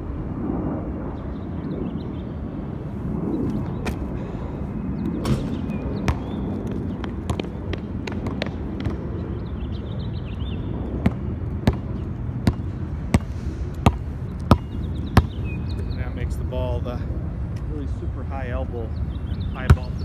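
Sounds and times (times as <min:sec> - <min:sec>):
outdoor background noise: 0:00.0 - 0:20.0
basketball bouncing on concrete: 0:05.2 - 0:09.2, 0:11.0 - 0:15.8, 0:19.6 - 0:20.0.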